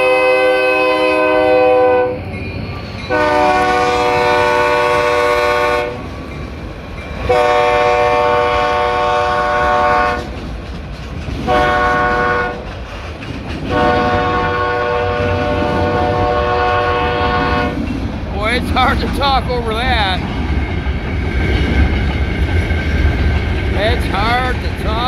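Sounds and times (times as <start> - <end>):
locomotive air horn: 0.0 - 2.2, 3.1 - 6.0, 7.3 - 10.3, 11.5 - 12.6, 13.7 - 17.8
train rumbling: 0.0 - 25.0
wheels clacking on rails: 0.8 - 25.0.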